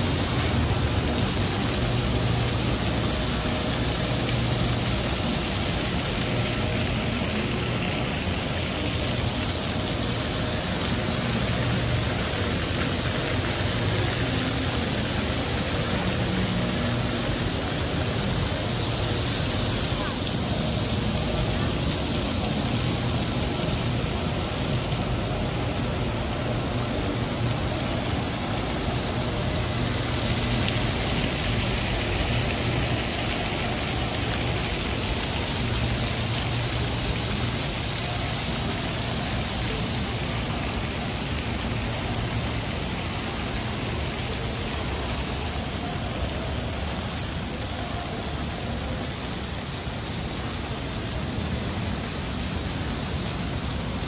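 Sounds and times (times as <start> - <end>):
road traffic: 0.0 - 54.0.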